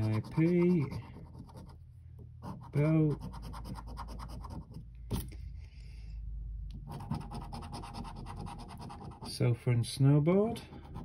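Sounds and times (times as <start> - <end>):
coin scratching scratchcard: 0.0 - 1.7, 2.4 - 4.7, 6.9 - 9.4.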